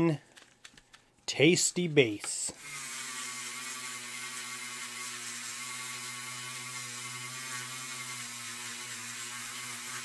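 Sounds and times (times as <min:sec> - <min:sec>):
rotary tool polishing metal: 0:02.6 - 0:10.0.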